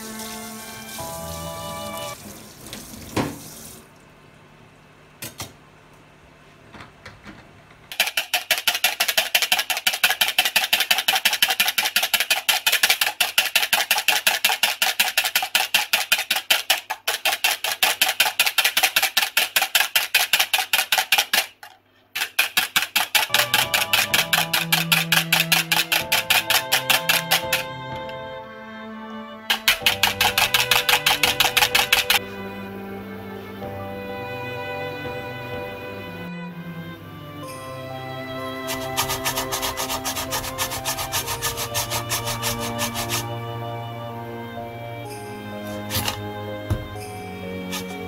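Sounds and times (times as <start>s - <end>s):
background music: 0.0s - 2.2s, 23.3s - 48.0s
whisk beating in a plastic bowl: 8.0s - 21.4s, 22.2s - 27.7s, 29.5s - 32.2s, 38.6s - 43.3s.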